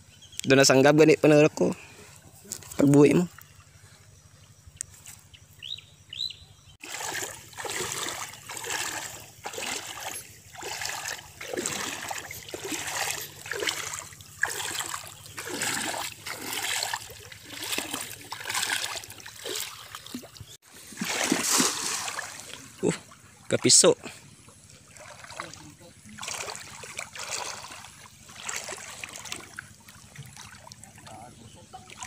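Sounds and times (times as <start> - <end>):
faint bird chirps: 2.0 - 6.8
legs wading through water: 6.8 - 32.0.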